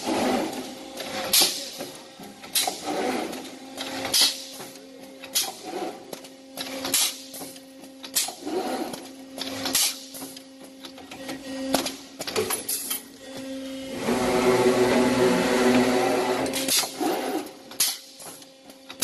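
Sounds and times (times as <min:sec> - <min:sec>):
welding machine electrical hum: 0:00.0 - 0:19.0.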